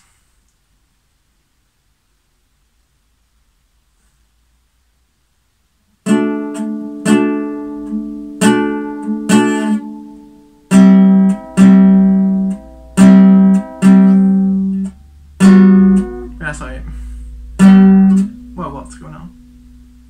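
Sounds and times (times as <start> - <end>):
acoustic guitar played slowly: 5.9 - 20.0.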